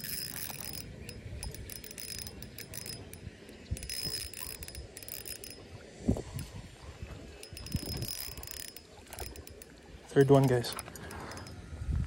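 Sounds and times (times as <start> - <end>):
fishing reel clicking: 0.0 - 6.6, 7.4 - 11.7.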